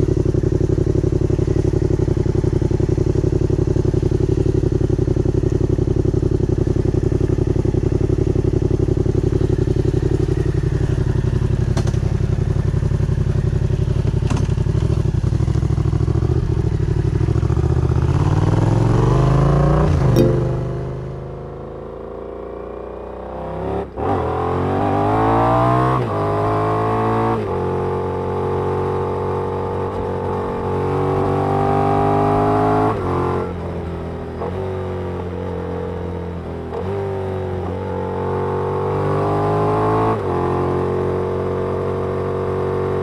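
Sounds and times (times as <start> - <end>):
motorcycle engine idling: 0.0 - 18.2.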